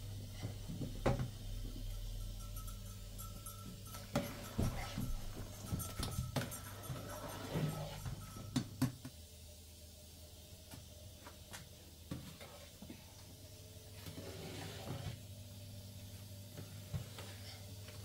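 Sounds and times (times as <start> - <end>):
low steady hum: 0.0 - 18.0
metal spoon clinking on pot: 2.0 - 7.4.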